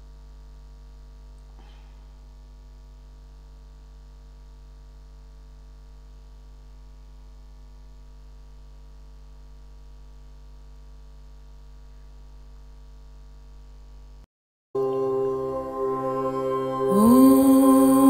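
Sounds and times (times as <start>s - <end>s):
electrical mains hum: 0.0s - 14.2s.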